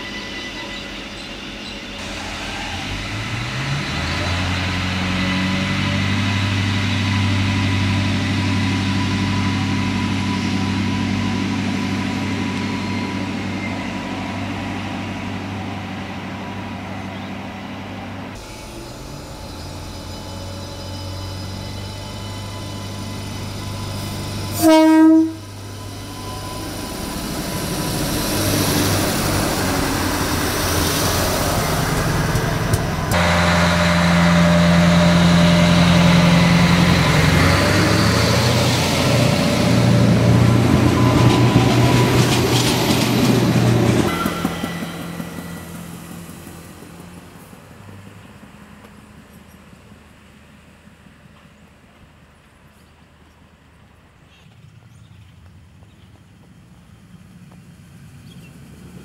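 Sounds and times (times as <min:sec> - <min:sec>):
approaching railcar running noise: 0:00.0 - 0:59.0
diesel railcar engine hum: 0:00.0 - 0:59.0
train horn blast: 0:24.4 - 0:26.6, 0:33.1 - 0:38.0.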